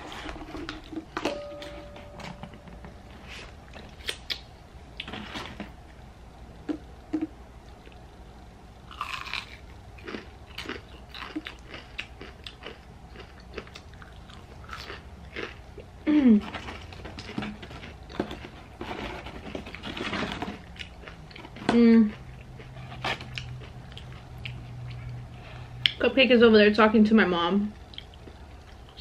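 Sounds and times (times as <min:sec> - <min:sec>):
crunchy onion rings chewing: 0:08.9 - 0:26.0.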